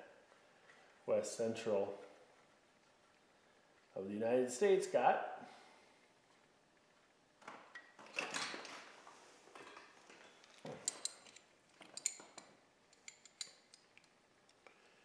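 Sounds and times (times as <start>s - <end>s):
metallic clinks of wrenches: 10.8s - 14.2s.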